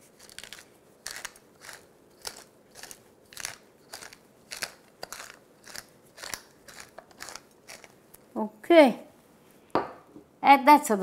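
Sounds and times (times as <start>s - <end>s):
pepper mill grinding: 0.0s - 8.0s.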